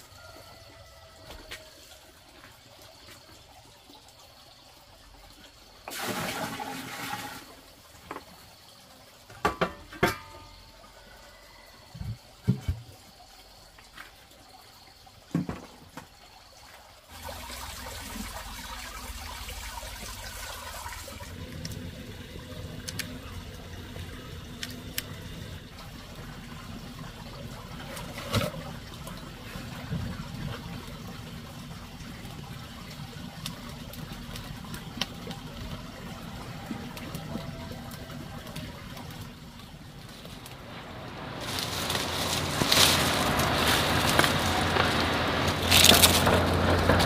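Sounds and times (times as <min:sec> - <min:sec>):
water splashing and trickling: 0:00.0 - 0:47.0
steady rushing water: 0:16.4 - 0:47.0.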